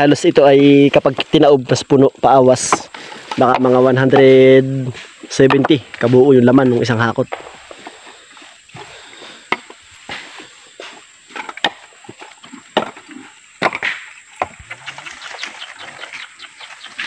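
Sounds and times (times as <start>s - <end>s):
sharp woody knocks and thuds: 13.6s - 14.6s.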